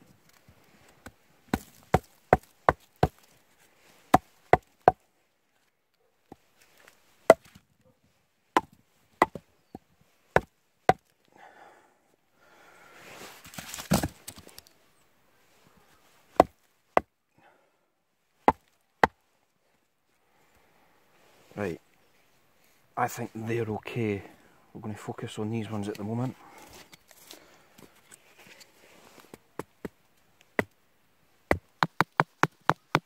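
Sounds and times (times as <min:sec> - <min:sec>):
logs shifted in snow: 0:00.0 - 0:05.7, 0:06.3 - 0:07.6, 0:12.7 - 0:14.8, 0:25.6 - 0:29.6.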